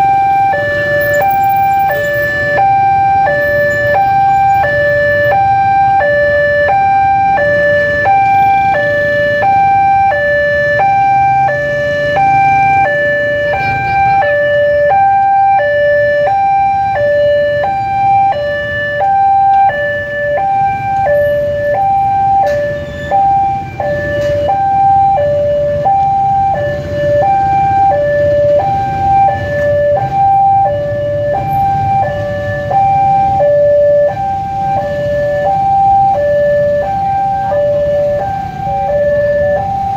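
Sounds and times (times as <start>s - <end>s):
two-tone crossing alarm: 0.0s - 39.9s.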